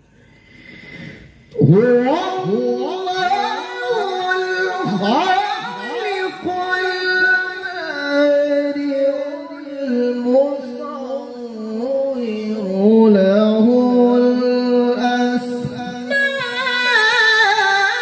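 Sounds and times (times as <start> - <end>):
man chanting into a microphone: 1.5 - 18.0.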